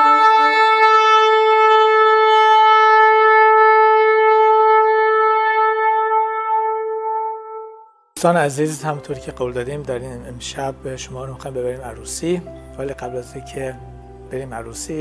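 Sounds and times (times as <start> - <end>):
shofar long blast: 0.0 - 7.9.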